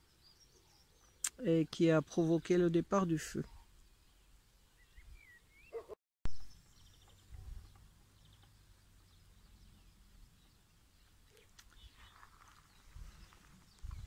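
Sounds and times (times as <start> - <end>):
faint bird chirps: 3.4 - 14.0
wind rumble on microphone: 7.2 - 7.8, 12.7 - 14.0.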